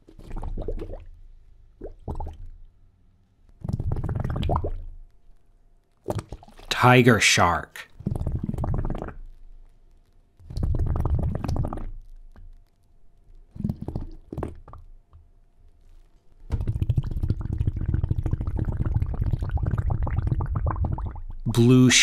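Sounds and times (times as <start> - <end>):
underwater gurgling and bubbling: 3.7 - 4.8, 8.0 - 9.2, 10.5 - 11.9, 16.6 - 21.4.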